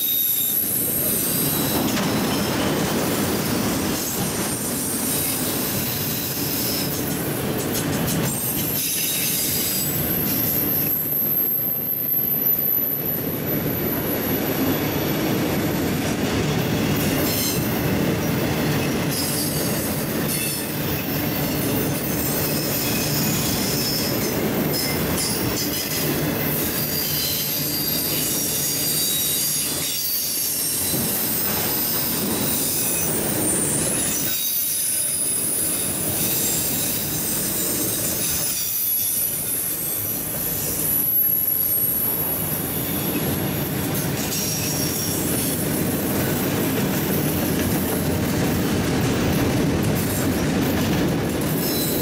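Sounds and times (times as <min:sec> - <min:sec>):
wheel squeal: 0:00.0 - 0:02.9, 0:18.8 - 0:43.3, 0:51.6 - 0:52.0
train cars rumbling on rails: 0:00.0 - 0:52.0.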